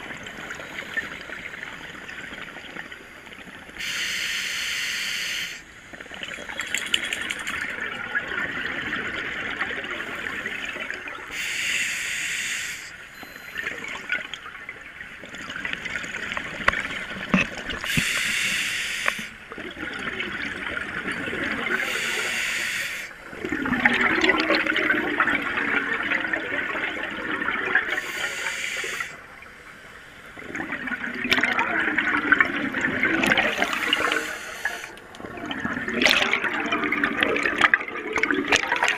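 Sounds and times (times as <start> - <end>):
hissing regulator inhales: 3.8 - 5.6, 11.3 - 13.0, 17.9 - 19.4, 21.8 - 23.1, 28.0 - 29.2, 33.5 - 35.0
gurgling exhaled bubbles: 23.3 - 28.2, 30.4 - 38.9.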